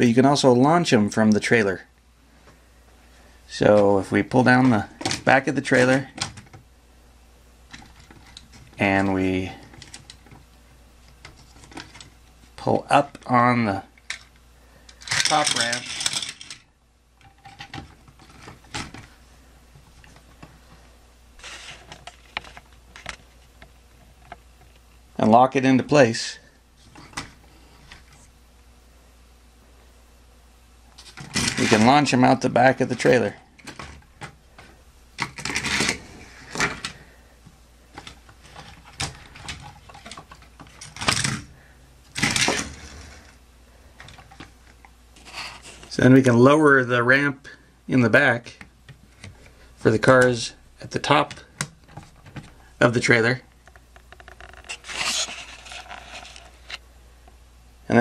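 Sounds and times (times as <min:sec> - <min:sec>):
plastic toy cars clattering: 0:15.0 - 0:16.6, 0:31.1 - 0:31.9.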